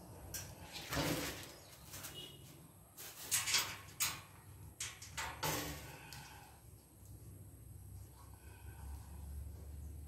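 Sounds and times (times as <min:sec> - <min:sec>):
metal wire rack rattling and scraping: 0:03.0 - 0:06.1.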